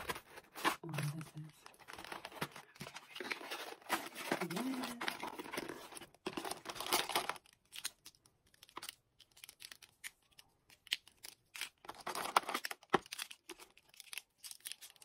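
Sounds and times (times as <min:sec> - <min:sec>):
cardboard rustling: 0:00.0 - 0:07.4.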